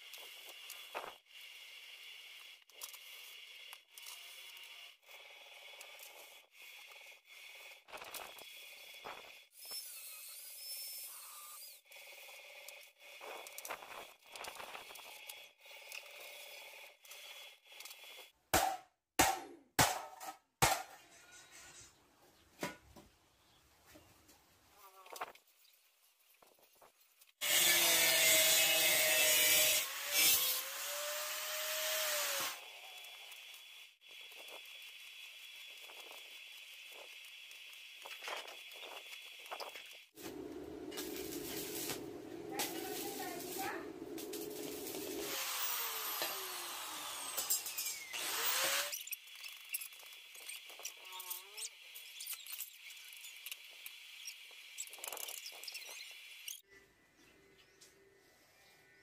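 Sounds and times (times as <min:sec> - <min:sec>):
angle grinder cutting steel: 0:27.4 - 0:37.0, 0:40.1 - 0:49.8
welding arc crackling and hissing: 0:27.4 - 0:49.1
angle grinder whine: 0:40.2 - 0:49.0.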